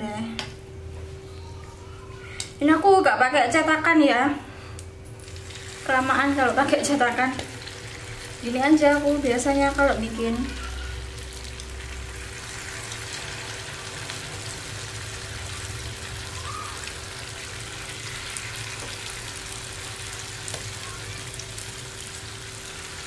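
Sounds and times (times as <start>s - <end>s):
faint steady hum: 0.0s - 23.0s
fritters sizzling in hot oil: 5.2s - 23.0s.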